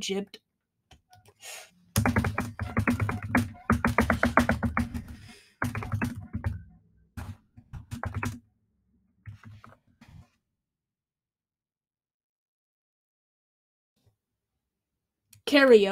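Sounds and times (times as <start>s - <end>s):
rapid keyboard typing: 2.0s - 8.4s.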